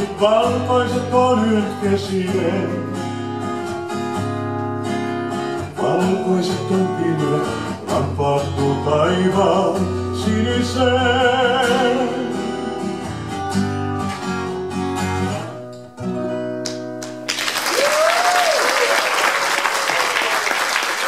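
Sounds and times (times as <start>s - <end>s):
man singing: 0.0s - 3.2s, 5.6s - 13.1s
acoustic guitar: 0.0s - 17.4s
audience applause: 17.1s - 21.0s.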